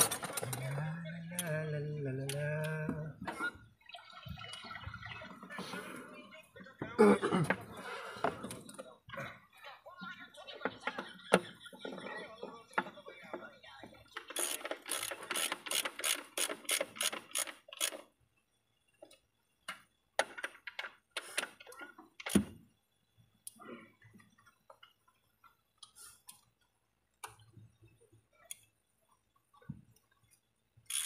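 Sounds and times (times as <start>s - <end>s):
ratchet wrench clicking: 14.3s - 18.1s.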